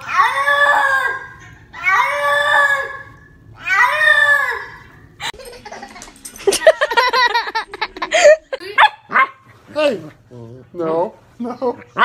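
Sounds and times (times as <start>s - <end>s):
cat yowling: 0.0s - 4.8s.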